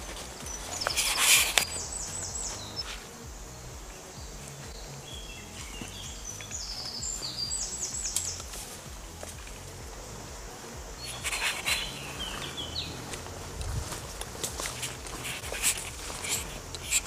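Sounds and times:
footsteps on woodland path: 0:00.0 - 0:17.0
rustle on microphone: 0:00.0 - 0:17.0
songbird singing: 0:00.0 - 0:17.0.

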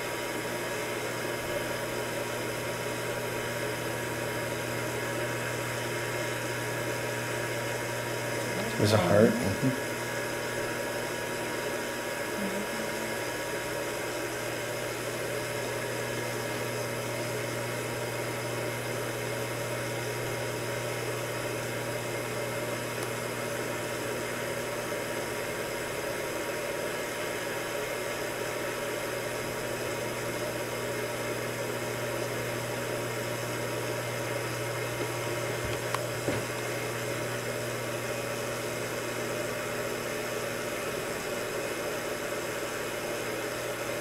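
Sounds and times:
machine hum: 0:00.0 - 0:27.8.

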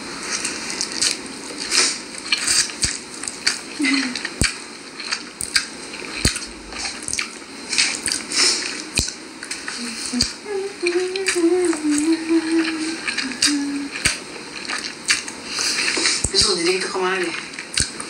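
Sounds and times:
person chewing and slurping: 0:00.2 - 0:16.6, 0:17.3 - 0:18.0
person humming: 0:09.8 - 0:14.2.

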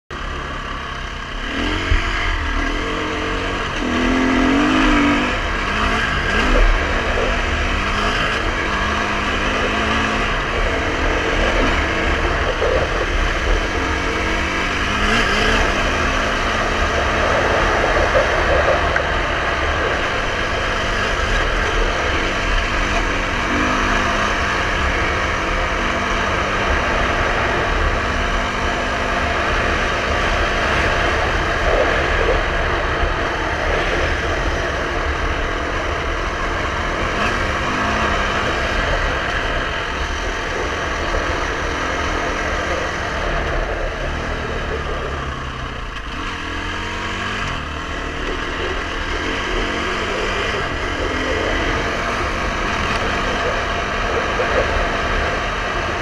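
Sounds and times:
dirt bike engine revving: 0:00.1 - 0:56.0.

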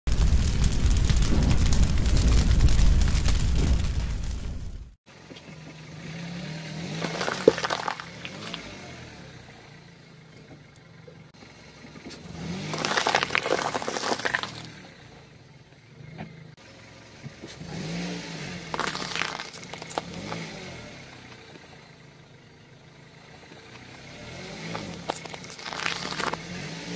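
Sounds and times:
car engine hum: 0:04.3 - 0:26.9
peppers crunching under tyre: 0:06.8 - 0:08.8, 0:12.1 - 0:14.8, 0:18.7 - 0:20.7, 0:24.0 - 0:26.7.

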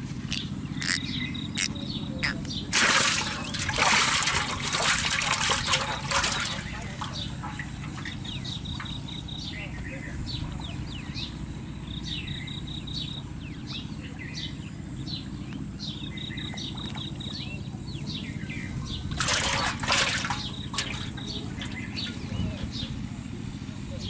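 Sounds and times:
birds chirping: 0:00.0 - 0:24.0
loud water splash: 0:02.7 - 0:09.0, 0:19.1 - 0:22.2.

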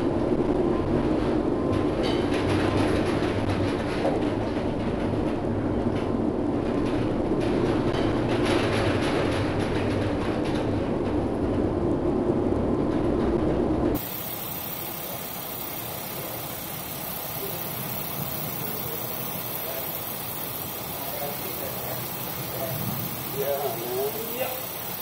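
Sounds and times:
steady hiss: 0:14.0 - 0:25.0.

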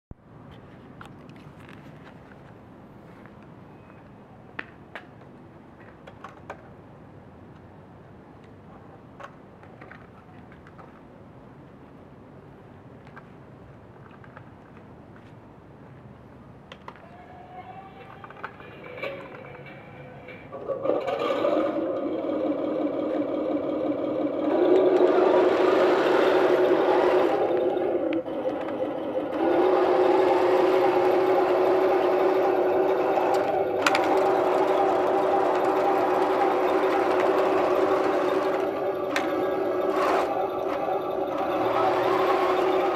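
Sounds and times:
toy tank motor whirring: 0:20.8 - 0:42.9.

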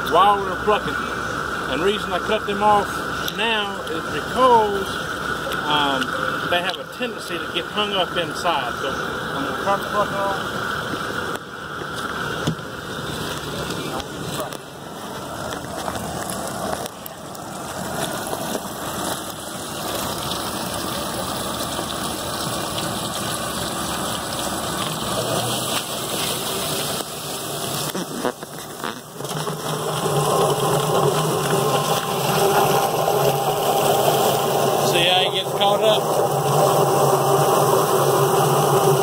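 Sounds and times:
hose spraying water: 0:00.0 - 0:39.0
poultry plucker motor whirring: 0:16.8 - 0:39.0.

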